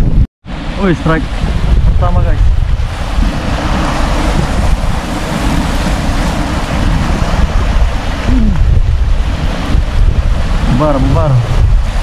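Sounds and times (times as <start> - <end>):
wind buffeting microphone: 0.0 - 12.0
sea waves washing against rocks: 0.5 - 12.0.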